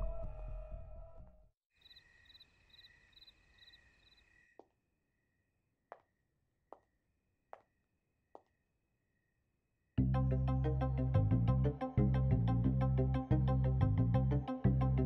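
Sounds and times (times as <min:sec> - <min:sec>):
crickets chirping: 0:01.8 - 0:05.4.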